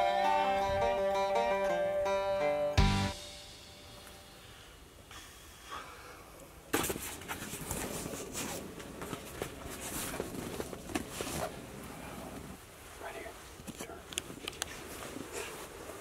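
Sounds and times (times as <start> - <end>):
rustling and clicking of gear: 6.8 - 11.7.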